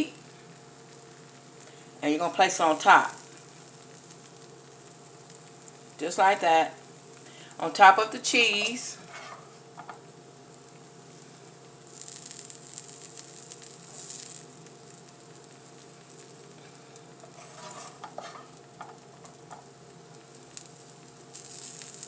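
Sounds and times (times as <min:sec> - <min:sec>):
chicken sizzling in frying pans: 0:00.0 - 0:22.0
utensil scraping pan: 0:08.6 - 0:09.5, 0:17.2 - 0:18.5.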